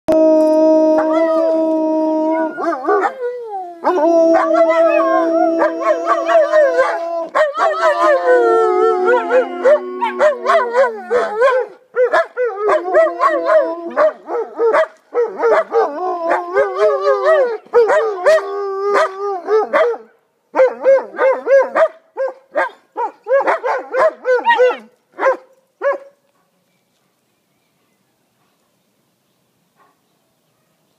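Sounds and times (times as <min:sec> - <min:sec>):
dogs howling together: 0:00.1 - 0:20.0.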